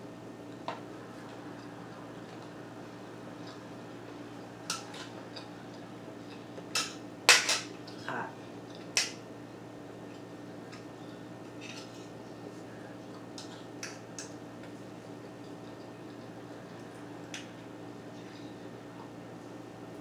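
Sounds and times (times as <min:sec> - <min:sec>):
cutlery clinking on dishes: 0:06.8 - 0:07.7.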